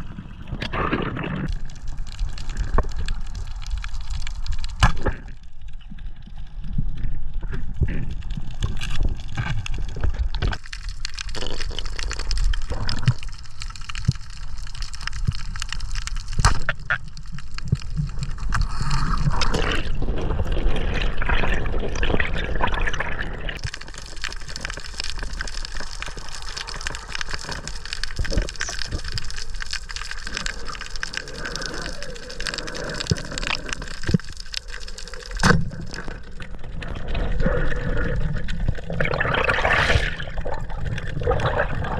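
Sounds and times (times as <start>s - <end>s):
muffled underwater rush: 17.5s - 41.9s.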